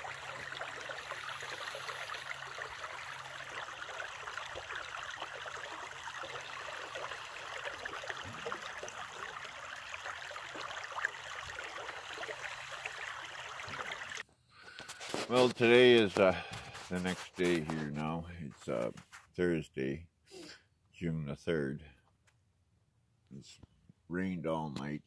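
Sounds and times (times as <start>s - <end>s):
creek trickling over stones: 0.0s - 14.2s.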